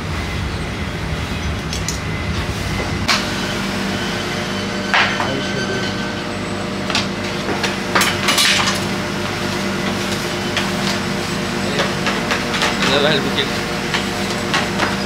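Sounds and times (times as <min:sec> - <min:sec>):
steady machine hum: 0:00.0 - 0:15.0
metal pans clanking: 0:07.0 - 0:08.9.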